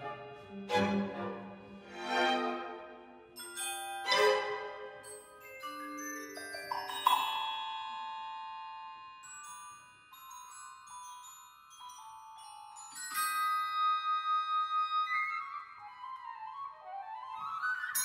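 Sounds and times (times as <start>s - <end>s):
orchestral music: 0.0s - 5.1s
bell-like held notes: 3.3s - 14.7s
mallet percussion notes: 3.4s - 14.1s.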